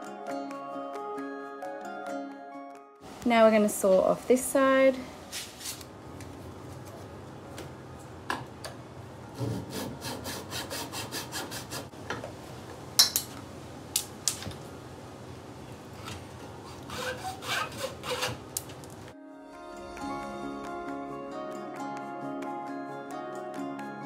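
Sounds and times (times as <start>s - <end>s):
hand saw cutting wood: 9.4s - 11.9s, 16.6s - 18.5s.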